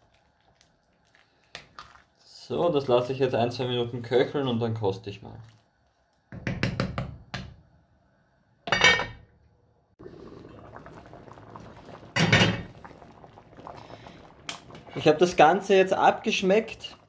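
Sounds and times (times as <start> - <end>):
stew simmering and bubbling: 0.0 - 8.6, 9.9 - 17.0
wooden spoon knocking against pot: 6.4 - 7.5.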